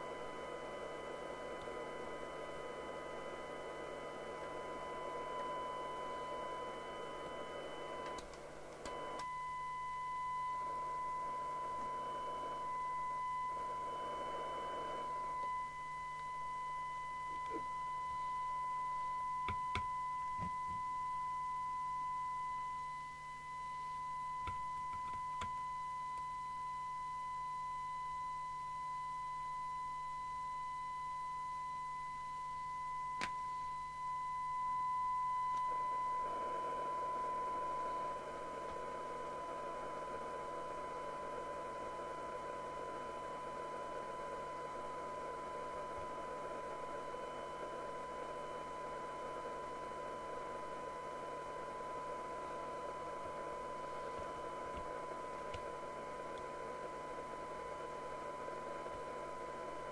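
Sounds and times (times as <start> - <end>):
steady radio test tone: 0.0 - 59.9
radio hiss: 35.8 - 59.9.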